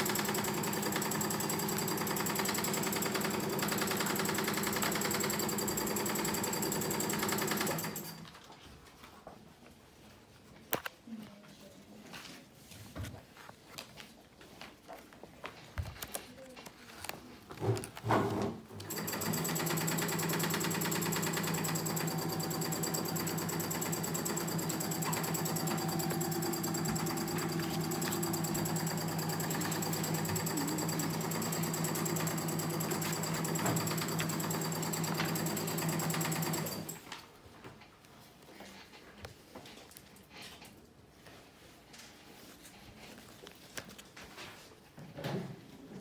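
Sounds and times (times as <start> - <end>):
sewing machine stitching: 0.0 - 8.4, 18.3 - 37.1.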